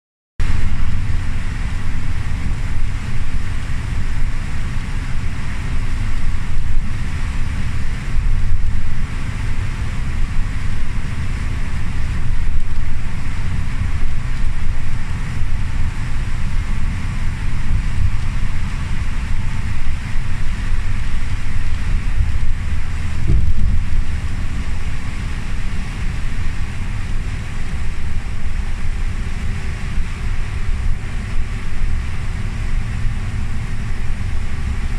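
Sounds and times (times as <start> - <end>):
bus engine and tyres rumbling: 0.4 - 34.9
tyres hissing on wet road: 0.4 - 34.9
low thump: 23.2 - 24.0.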